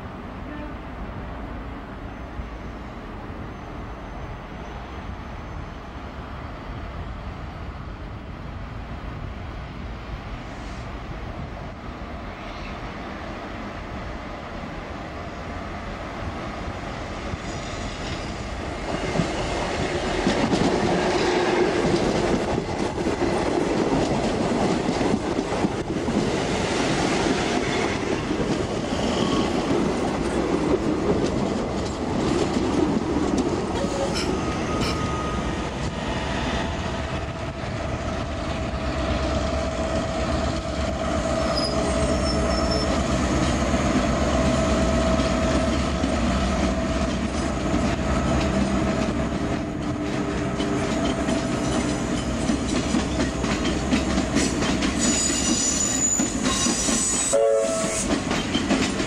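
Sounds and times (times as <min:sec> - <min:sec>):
diesel locomotive engine rumble: 0:00.0 - 0:59.0
train wheels clattering: 0:17.4 - 0:36.1, 0:41.6 - 0:59.0
wheels squealing on track: 0:41.4 - 0:43.0, 0:55.0 - 0:58.1.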